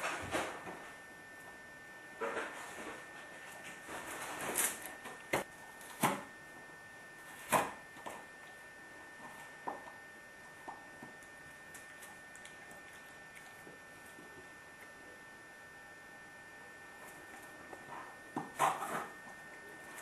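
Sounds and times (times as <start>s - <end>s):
faint high-pitched hum: 0.0s - 20.0s
dog chewing cardboard carton: 17.8s - 20.0s.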